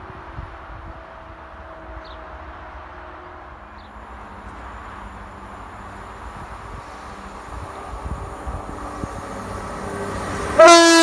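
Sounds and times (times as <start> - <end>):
wind buffeting microphone: 6.0 - 11.0.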